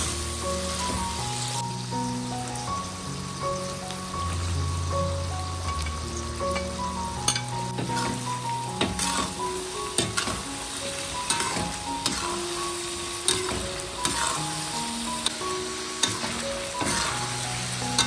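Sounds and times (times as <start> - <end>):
background music: 0.0 - 18.0
food sizzling in hot oil: 0.0 - 18.0
spatula scraping a pan: 7.3 - 9.4, 11.2 - 12.4, 13.3 - 14.5, 15.2 - 18.0.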